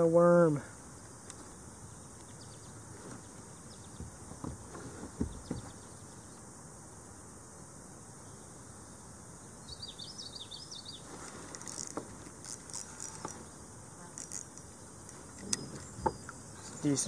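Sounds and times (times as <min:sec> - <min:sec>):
high insect buzzing: 0:00.8 - 0:17.0
fishing gear clicks and rustles: 0:11.1 - 0:17.0.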